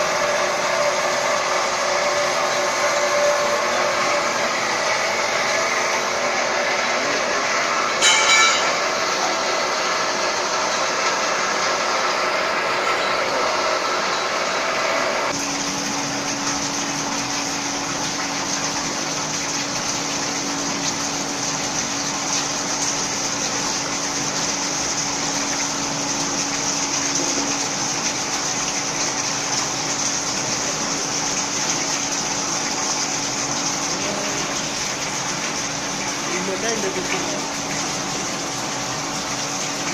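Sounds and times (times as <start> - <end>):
machine noise: 0.0 - 19.0
liquid pouring into trough: 0.0 - 39.9
steady machine hum: 0.0 - 39.9.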